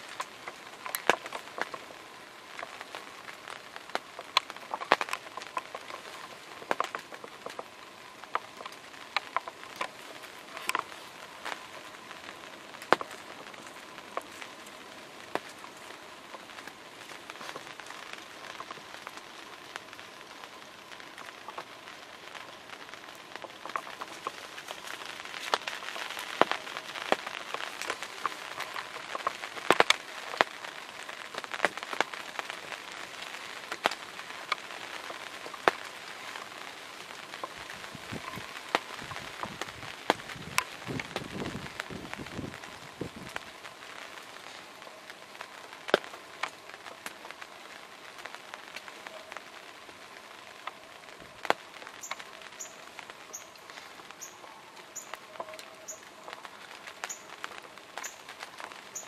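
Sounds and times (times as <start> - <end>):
rain hissing: 0.0 - 59.0
raindrops tapping: 0.0 - 59.0.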